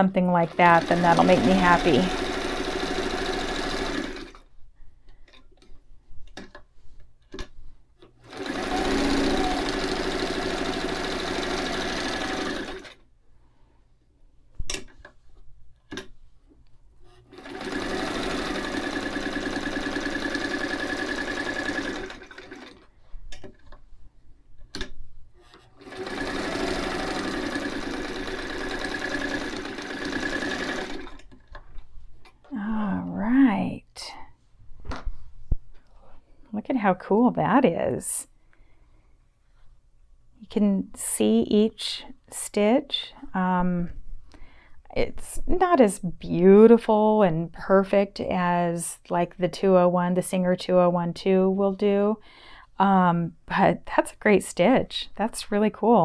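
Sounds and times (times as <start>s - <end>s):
sewing machine stitching: 0.4s - 4.4s, 8.2s - 13.0s, 17.2s - 22.9s, 25.5s - 31.4s.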